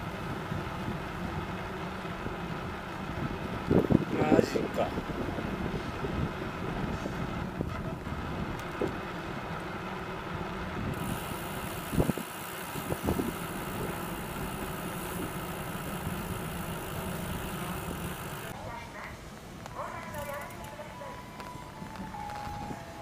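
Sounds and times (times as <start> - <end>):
bicycle tyres rumbling on asphalt: 0.0 - 18.7
wind on microphone: 2.3 - 9.0, 10.7 - 14.3.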